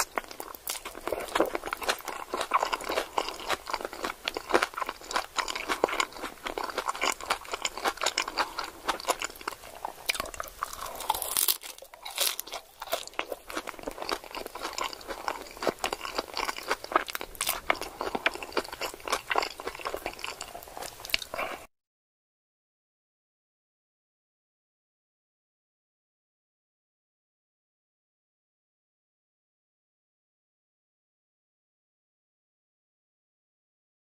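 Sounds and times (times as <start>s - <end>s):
person chewing crunchy food: 0.0s - 21.7s.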